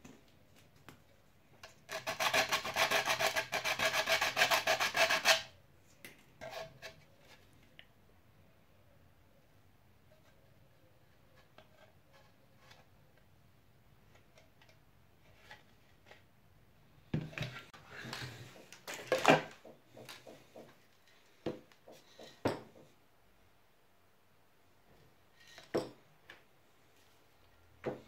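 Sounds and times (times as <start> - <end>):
plastic items knocking on workbench: 18.8 - 20.8, 21.4 - 22.9.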